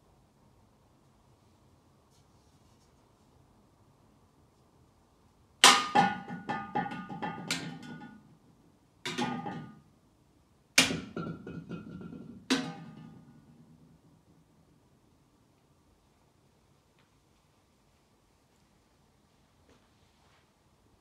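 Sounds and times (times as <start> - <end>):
hollow plastic heads knocking: 5.6 - 8.2, 9.1 - 9.8, 10.8 - 13.4.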